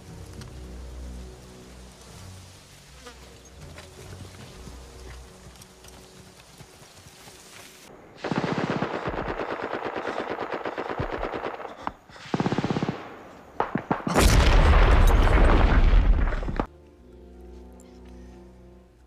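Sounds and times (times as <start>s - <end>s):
machine-gun fire: 8.2s - 16.7s.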